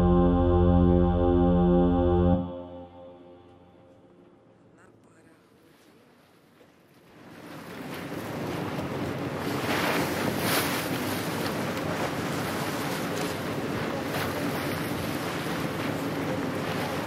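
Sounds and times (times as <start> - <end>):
sea noise: 0.0 - 17.0
wind: 3.6 - 17.0.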